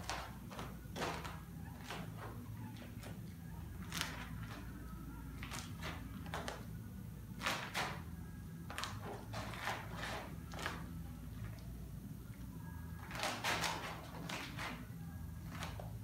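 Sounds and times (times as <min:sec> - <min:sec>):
steady low hum: 0:00.0 - 0:16.0
squeegee scraping fiberglass cloth: 0:08.7 - 0:10.9.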